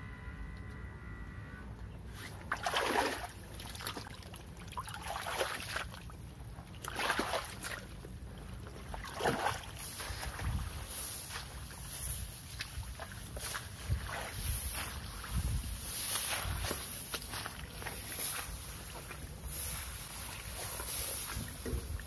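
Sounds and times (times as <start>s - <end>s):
low steady machine rumble: 0.0s - 22.0s
tracks sloshing in mud: 2.1s - 22.0s.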